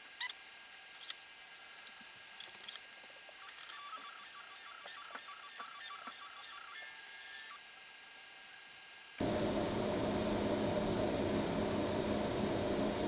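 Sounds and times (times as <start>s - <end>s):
stepper motors whining in pulses: 9.2s - 13.0s.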